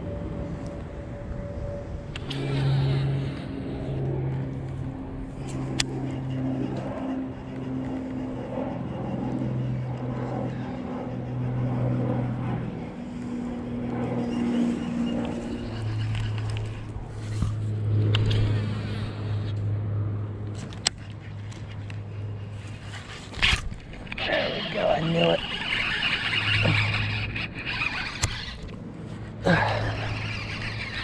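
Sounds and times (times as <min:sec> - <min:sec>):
engine humming: 0:00.0 - 0:31.0
sharp clicks: 0:25.4 - 0:28.8.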